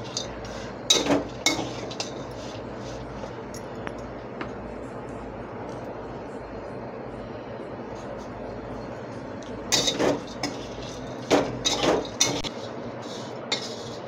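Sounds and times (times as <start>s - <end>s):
spatula scraping metal pan: 9.7s - 14.0s.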